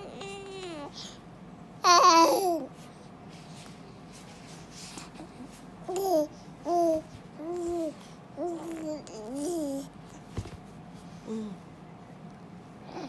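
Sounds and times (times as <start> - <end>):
baby cooing and babbling: 0.0 - 1.1, 1.8 - 2.7, 5.9 - 9.9.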